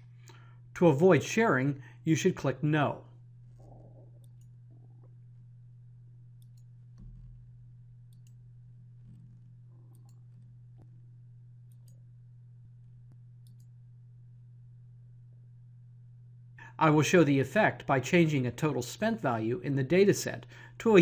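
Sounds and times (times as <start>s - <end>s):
steady low hum: 0.0s - 21.0s
computer mouse clicks: 6.4s - 6.7s, 8.1s - 8.4s, 9.1s - 10.5s, 11.6s - 12.0s, 13.4s - 13.7s.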